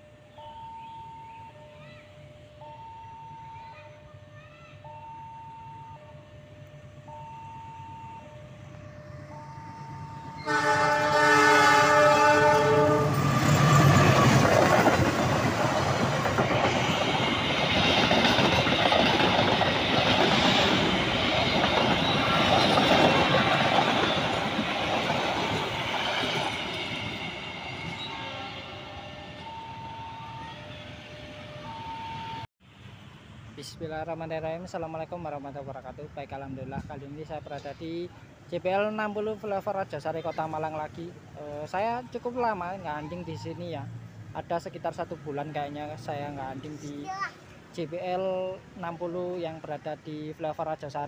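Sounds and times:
two-tone crossing alarm: 0.1 - 1.8, 2.5 - 3.8, 4.8 - 11.5, 27.2 - 32.5
locomotive horn: 8.7 - 13.4
train wheels rumbling on rails: 9.3 - 32.4.

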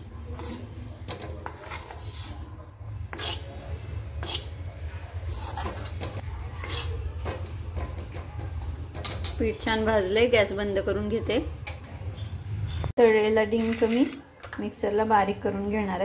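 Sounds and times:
spoon scraping an iron pan: 0.3 - 3.6, 4.2 - 4.6, 5.2 - 9.5, 12.2 - 14.3.

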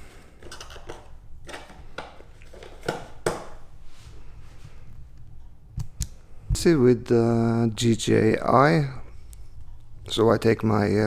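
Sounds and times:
packaging knocks and rustles: 0.4 - 3.6.

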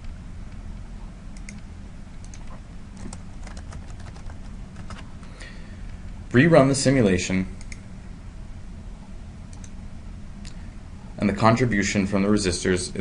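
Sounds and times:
low steady hum: 0.0 - 13.0
keyboard typing: 2.2 - 5.1.

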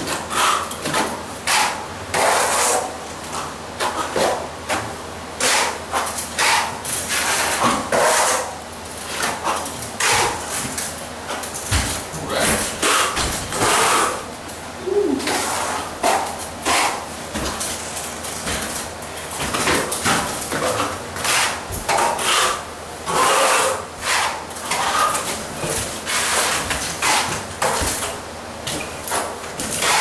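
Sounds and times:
trowel scraping wet plaster: 0.1 - 4.8, 5.4 - 10.6, 12.3 - 14.2, 15.3 - 17.1, 19.6 - 28.1, 29.1 - 30.0.

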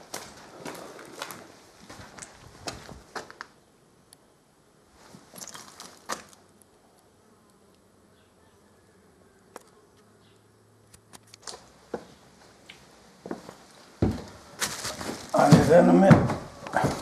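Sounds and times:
faint footsteps: 0.0 - 3.5, 11.2 - 17.0.

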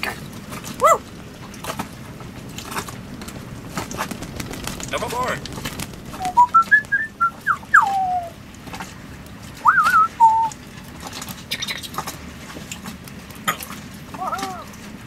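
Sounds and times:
parrot whistling: 6.1 - 8.4, 9.6 - 10.5.

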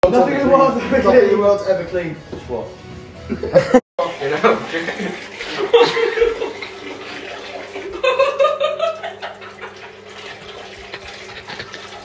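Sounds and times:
urine splashing into toilet water: 4.0 - 12.0.

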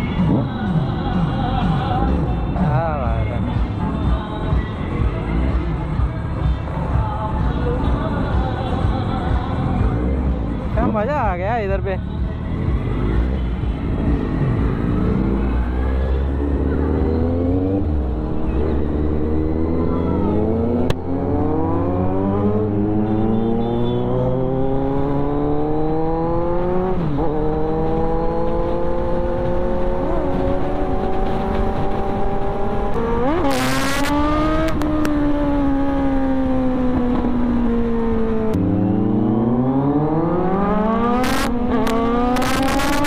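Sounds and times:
motorcycle engine accelerating: 12.4 - 43.0.

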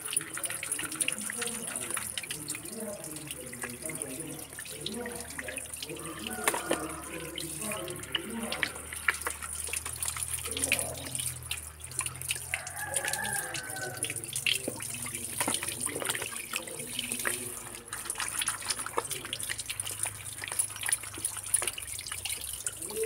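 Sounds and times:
tap water running and splashing: 0.0 - 23.0
water dripping: 0.0 - 23.0.

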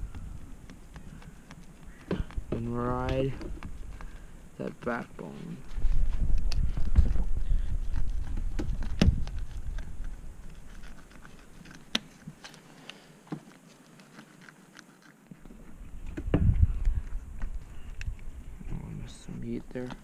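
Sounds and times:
low rumble: 0.0 - 0.6.

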